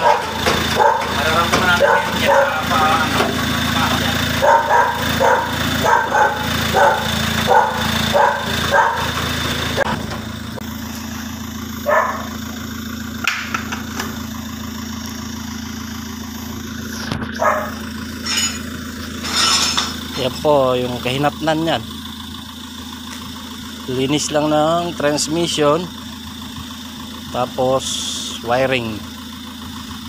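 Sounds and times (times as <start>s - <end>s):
dog barking: 0.0s - 2.8s, 4.4s - 9.2s, 11.8s - 12.4s, 17.4s - 17.8s
car engine idling: 0.0s - 30.0s.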